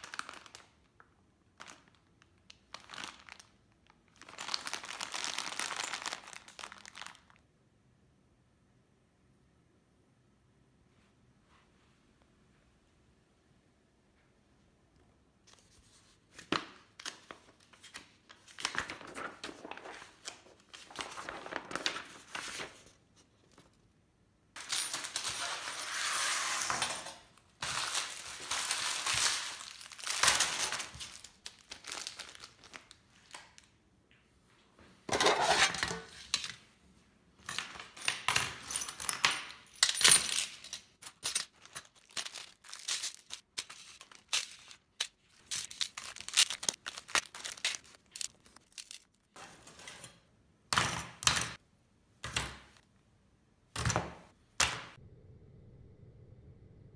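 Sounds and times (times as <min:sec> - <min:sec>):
plastic bags crinkling: 0:00.0 - 0:07.4, 0:27.6 - 0:33.5, 0:41.1 - 0:49.4.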